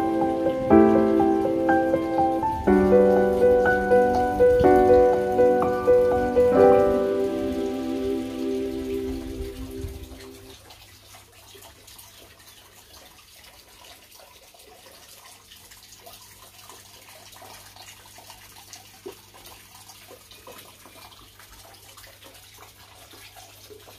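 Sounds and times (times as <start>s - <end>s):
water trickling and dripping: 0.0s - 23.9s.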